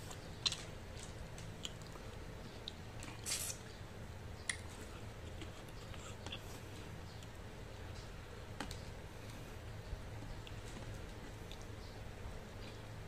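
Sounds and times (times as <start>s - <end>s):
wet chewing: 0.0s - 3.7s
mouth smacks and clicks: 4.4s - 6.5s.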